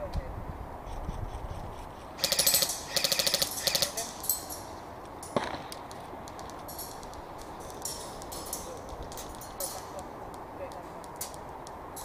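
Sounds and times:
airsoft rifle full-auto bursts: 0:02.2 - 0:03.9
sharp crack: 0:02.2 - 0:12.0.

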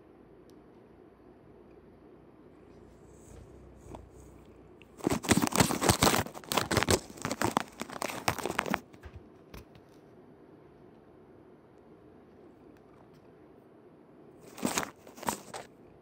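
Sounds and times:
cat paw scrabbling in container: 0:03.2 - 0:09.9, 0:14.4 - 0:15.7.

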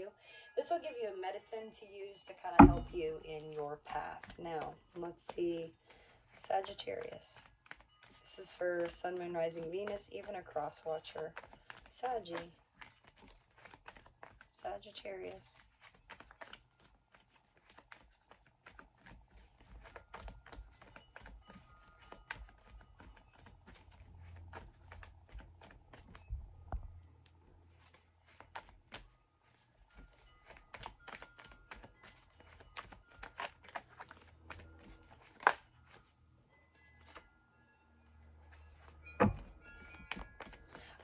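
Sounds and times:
card deck tap: 0:02.6 - 0:03.0
cards being shuffled: 0:02.6 - 0:26.8, 0:27.7 - 0:36.1, 0:37.0 - 0:37.3, 0:38.5 - 0:41.0.

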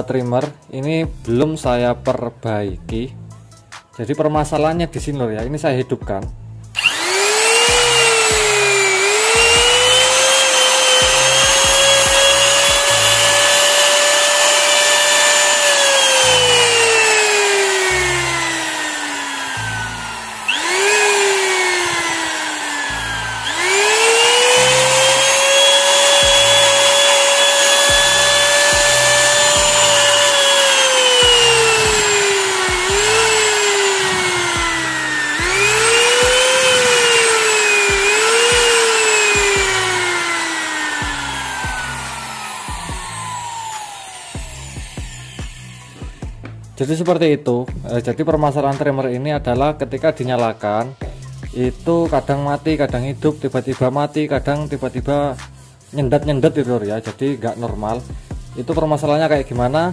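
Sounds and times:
router motor whining and stuttering: 0:06.7 - 0:46.6.

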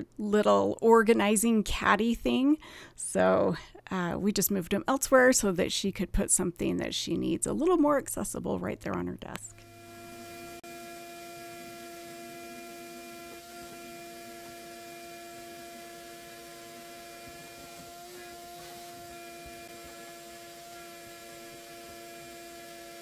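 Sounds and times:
shop vacuum whining: 0:09.5 - 0:23.0
vacuum hose sucking dust: 0:09.5 - 0:23.0.

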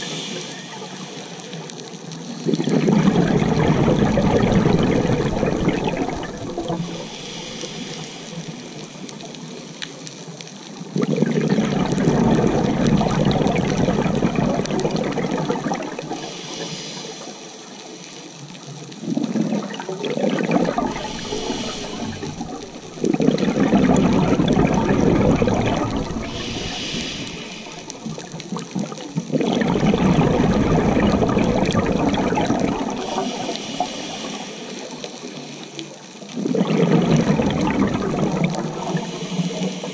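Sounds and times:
regulator inhale hiss: 0:00.0 - 0:01.7, 0:06.7 - 0:09.2, 0:16.1 - 0:18.0, 0:20.9 - 0:23.0, 0:26.2 - 0:28.4, 0:33.0 - 0:35.9, 0:38.9 - 0:39.9
exhaled air bubbling: 0:00.0 - 0:39.9.

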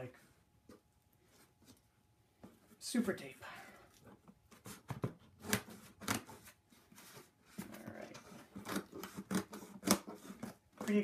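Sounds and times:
fingers scratching packing tape: 0:07.8 - 0:11.0.

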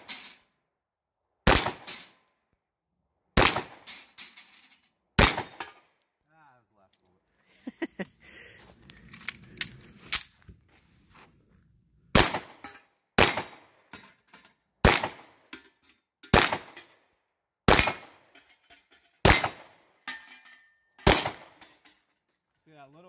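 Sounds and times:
pistol shots echoing: 0:01.5 - 0:02.0, 0:03.4 - 0:03.9, 0:05.2 - 0:05.8, 0:12.2 - 0:13.7, 0:14.8 - 0:15.4, 0:16.3 - 0:16.8, 0:21.0 - 0:21.6.

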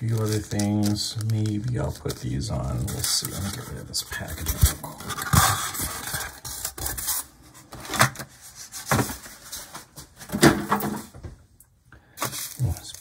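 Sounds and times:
foam packaging rubbing and knocking: 0:02.8 - 0:07.2.

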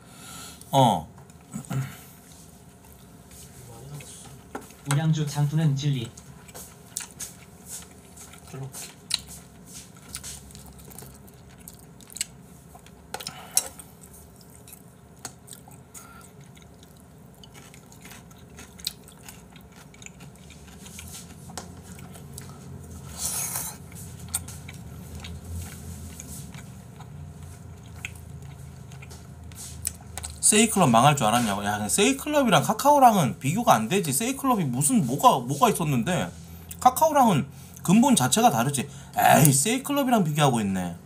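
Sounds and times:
person chewing close up: 0:06.1 - 0:30.5.

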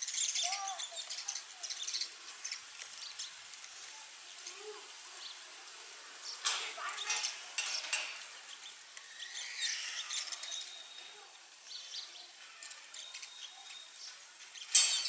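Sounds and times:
sparrow chirps: 0:00.0 - 0:03.4, 0:06.2 - 0:15.0
bird wingbeats and pecking taps: 0:02.3 - 0:04.6.

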